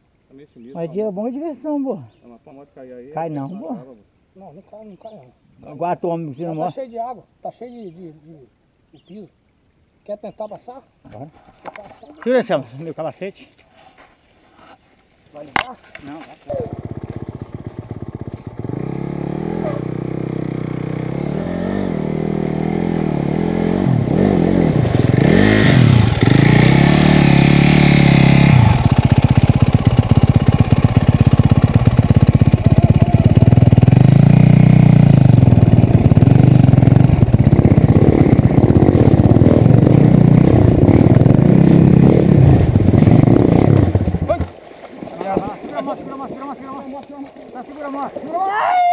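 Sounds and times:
dirt bike engine revving: 16.5 - 44.5.

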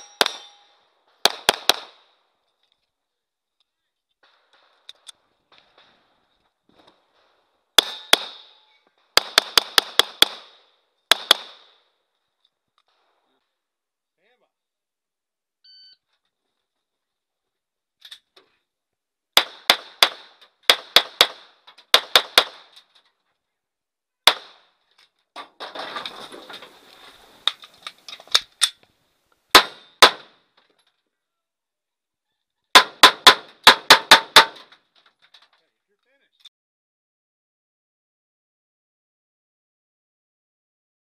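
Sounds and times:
pistol shots: 0.0 - 2.1, 7.8 - 11.8, 19.4 - 22.7, 24.2 - 24.8, 29.5 - 30.4, 32.8 - 34.6
shuffling clattering noise: 25.5 - 28.5.

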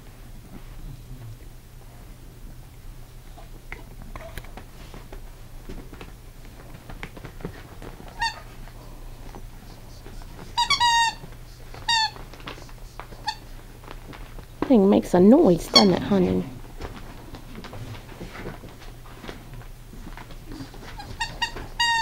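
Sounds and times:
dog toy squeaking: 8.2 - 8.4, 10.6 - 11.2, 11.8 - 12.2, 21.0 - 22.0.

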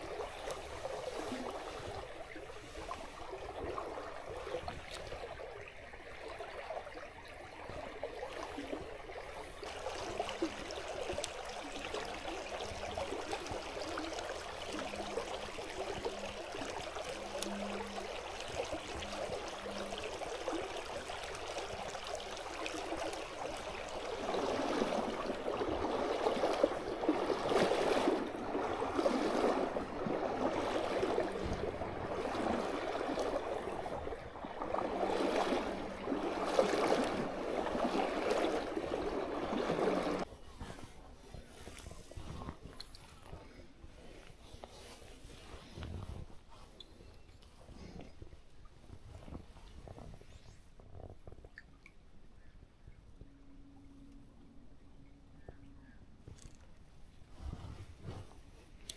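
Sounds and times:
stream running over stones: 0.0 - 40.3.

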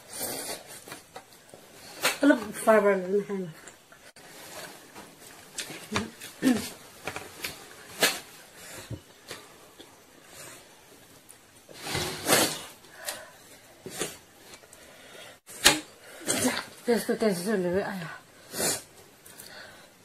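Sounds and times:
slurping noodles: 11.8 - 12.8.

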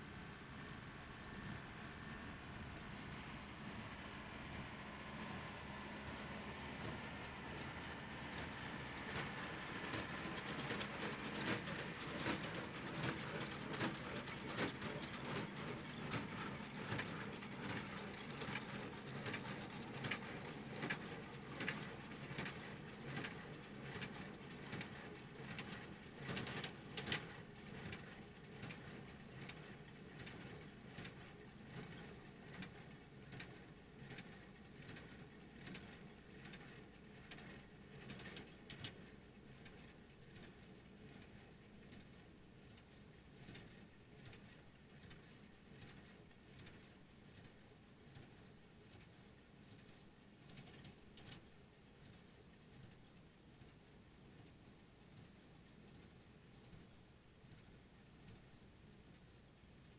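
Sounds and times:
tractor engine running: 0.0 - 23.8.

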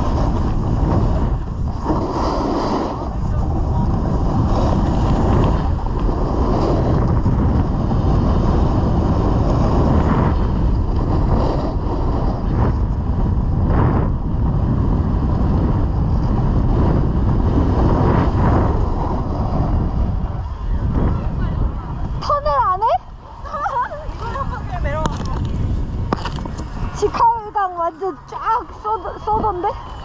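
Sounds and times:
snowboard sliding on packed snow: 0.0 - 20.2
wind buffeting microphone: 0.0 - 30.0.

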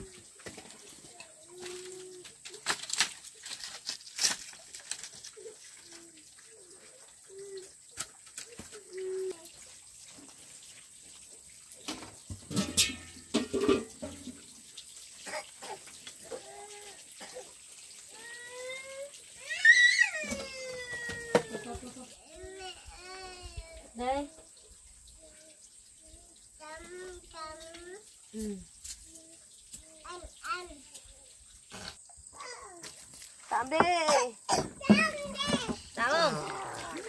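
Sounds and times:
wood poles knocking and clattering: 11.9 - 14.4
young child crying: 18.1 - 23.8.

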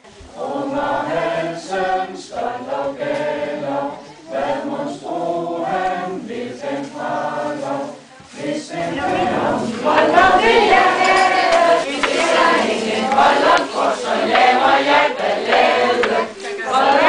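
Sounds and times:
group of people singing: 0.0 - 17.0.

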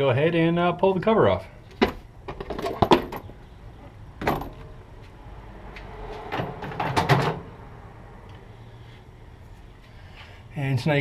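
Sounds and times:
engine cover scraping and knocking: 1.8 - 3.4, 6.1 - 7.5.

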